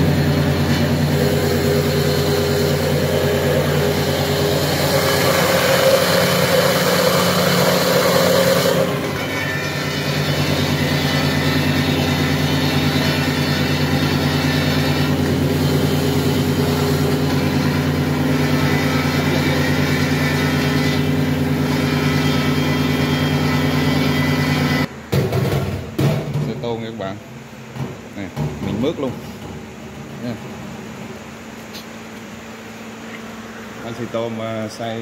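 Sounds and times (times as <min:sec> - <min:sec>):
grinder motor humming: 0:00.0 - 0:24.9.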